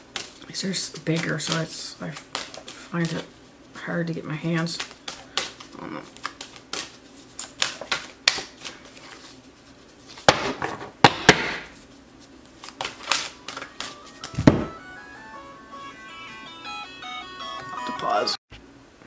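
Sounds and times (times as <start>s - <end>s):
cards shuffling: 0.0s - 3.4s, 4.0s - 10.5s, 11.7s - 14.7s
phone ringtone melody: 13.9s - 18.4s
card deck knocks: 14.3s - 14.7s.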